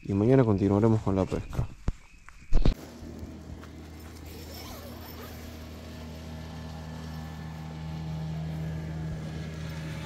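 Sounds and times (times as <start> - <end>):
low engine hum: 2.7 - 10.0.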